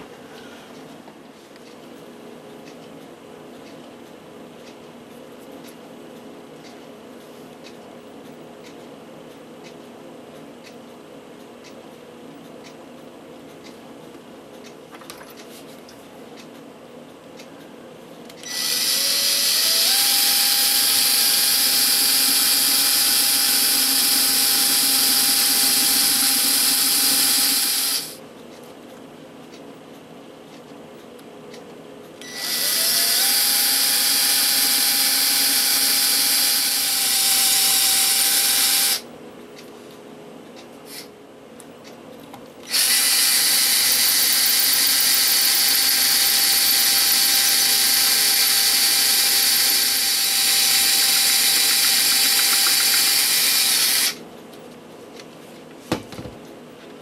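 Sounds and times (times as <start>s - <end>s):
electric drill boring into concrete: 18.4s - 28.2s, 32.3s - 39.0s, 42.7s - 54.2s.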